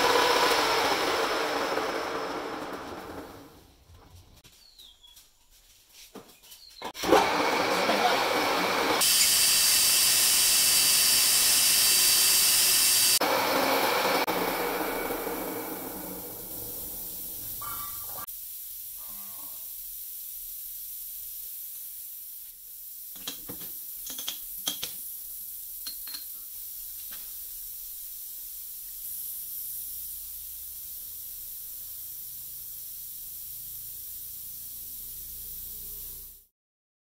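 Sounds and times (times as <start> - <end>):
faint steady hiss: 16.2 - 36.5.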